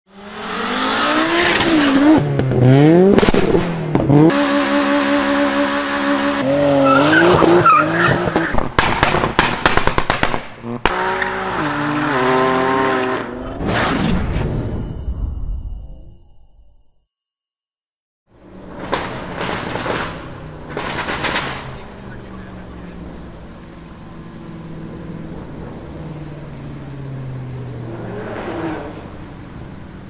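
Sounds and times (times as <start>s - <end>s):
car engines revving: 0.1s - 9.5s, 10.5s - 14.7s, 18.3s - 30.0s
exhaust bangs: 0.7s - 14.5s, 18.4s - 24.1s
tyre squeal: 6.7s - 8.6s.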